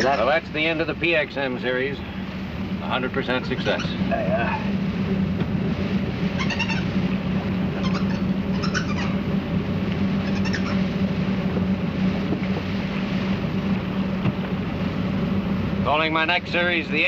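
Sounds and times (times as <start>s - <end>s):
boat engine drone: 0.0s - 17.0s
monkey squealing: 6.4s - 6.9s, 7.8s - 9.2s, 10.2s - 10.8s.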